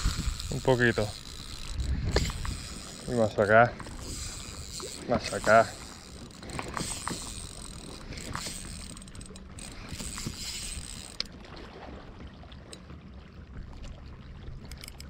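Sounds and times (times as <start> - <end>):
fishing reel whirring: 0.0 - 11.4, 14.6 - 15.0
reel click: 0.0 - 11.4, 14.6 - 15.0.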